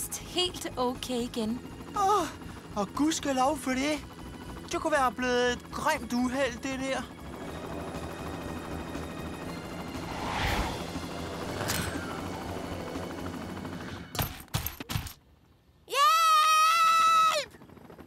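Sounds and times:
cartoon helicopter rotor chopping: 0:00.2 - 0:14.4.

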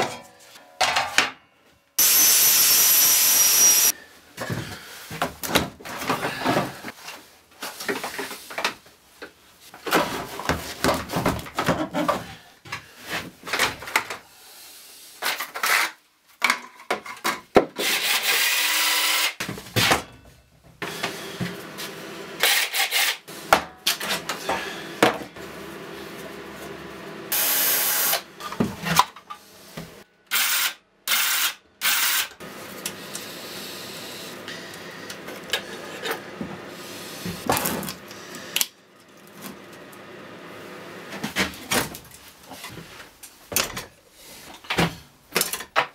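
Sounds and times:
tools knocking and clattering: 0:00.0 - 0:01.4.

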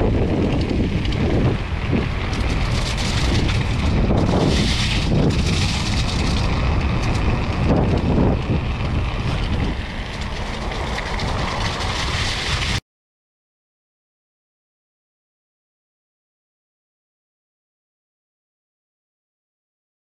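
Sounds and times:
bike rattling over cobbles: 0:00.0 - 0:12.8
wind on microphone: 0:00.0 - 0:12.8.

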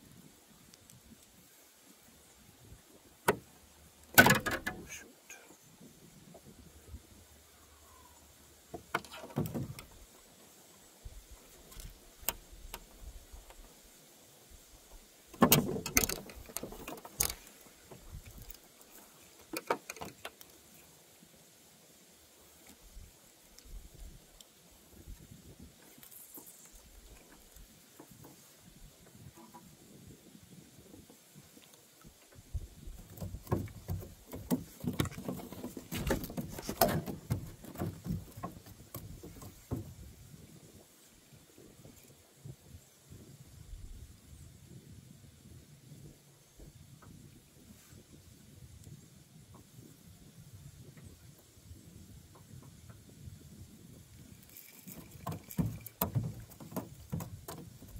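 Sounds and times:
rustling knocks: 0:04.1 - 0:05.0, 0:15.3 - 0:20.4, 0:32.8 - 0:40.1, 0:54.4 - 0:57.9
small clicks and taps: 0:54.4 - 0:57.9.

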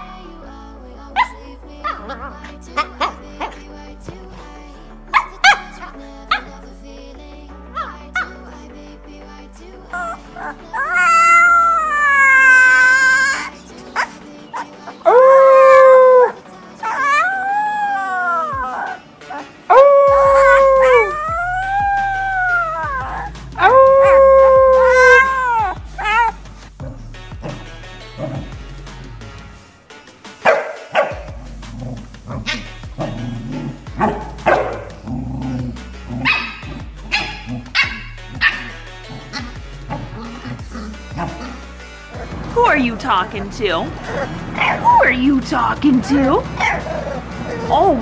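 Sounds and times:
background music: 0:00.0 - 0:48.0
puppy howling: 0:10.0 - 0:26.4
dog barking sharply: 0:30.5 - 0:31.3, 0:36.2 - 0:38.7.

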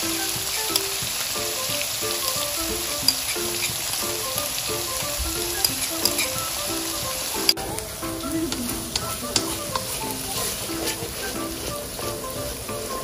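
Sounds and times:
spice paste sizzling in oil: 0:00.0 - 0:13.0
spoon scraping a plate: 0:05.6 - 0:06.4.

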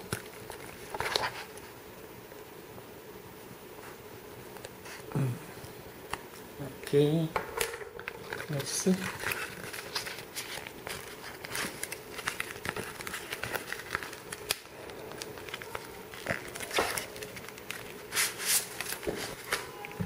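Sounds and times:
plastic pouch crinkling: 0:08.0 - 0:19.7.

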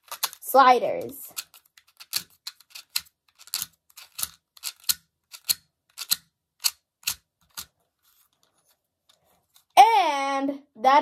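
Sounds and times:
plastic fidget cube clicking: 0:00.0 - 0:00.5, 0:01.3 - 0:07.8.

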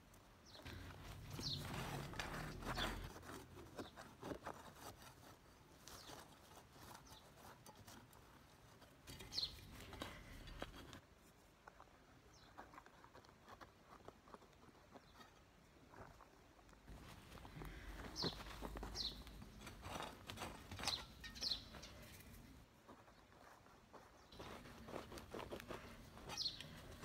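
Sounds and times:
hand tool scraping soil: 0:00.6 - 0:11.0, 0:16.9 - 0:22.5, 0:23.6 - 0:27.0.

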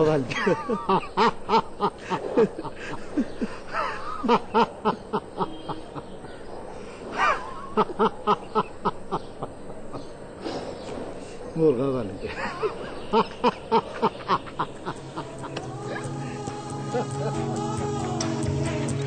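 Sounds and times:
person laughing: 0:00.2 - 0:06.3, 0:07.1 - 0:10.1, 0:12.2 - 0:17.5.

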